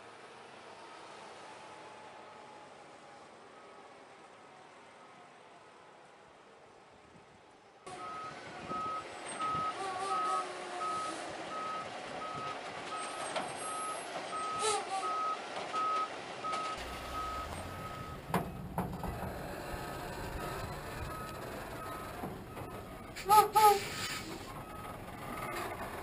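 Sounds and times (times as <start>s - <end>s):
diesel engine running: 7.9s - 26.0s
truck reversing alarm beeping: 7.9s - 26.0s.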